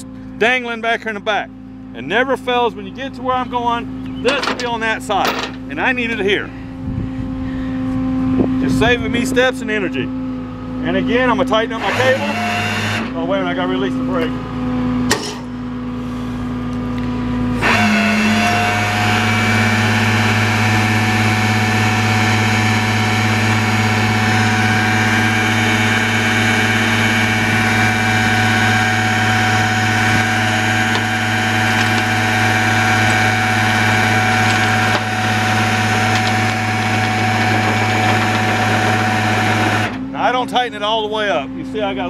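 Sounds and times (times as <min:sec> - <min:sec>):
winch reeling in cable: 0:11.7 - 0:13.1.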